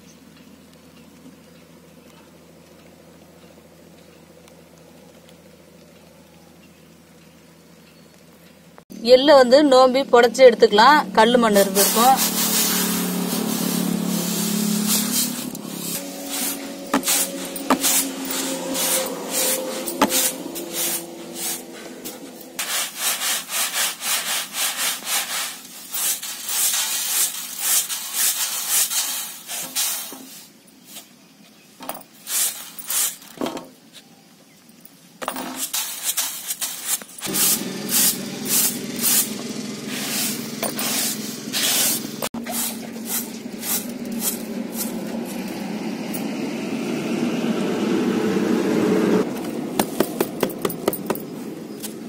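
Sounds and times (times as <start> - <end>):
seeds rattling on bamboo tray: 11.7 - 31.0, 35.2 - 45.6
rustle of seeds by hand: 11.7 - 34.2, 35.4 - 45.8.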